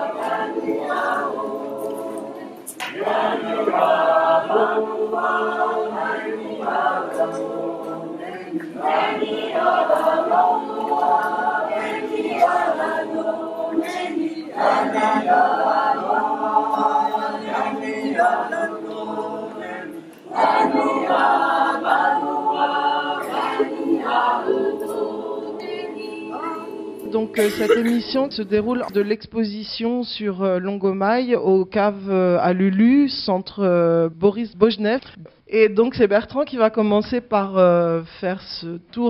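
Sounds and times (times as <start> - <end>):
choir singing a cappella: 0.0 - 29.0.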